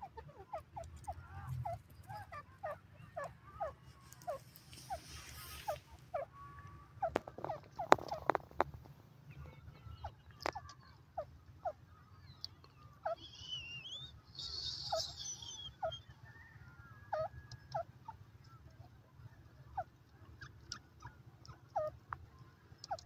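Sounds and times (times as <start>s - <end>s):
high chirping: 9.5s - 16.4s
francolin calling: 9.9s - 18.6s.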